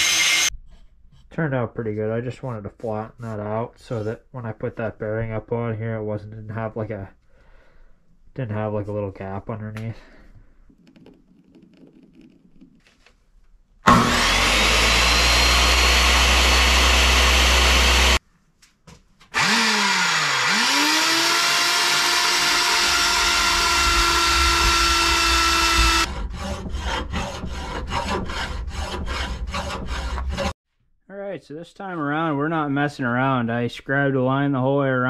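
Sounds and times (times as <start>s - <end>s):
electric power saw cutting: 0.0s - 0.5s, 13.8s - 18.2s, 19.4s - 26.2s
hand hacksaw strokes: 25.4s - 30.5s.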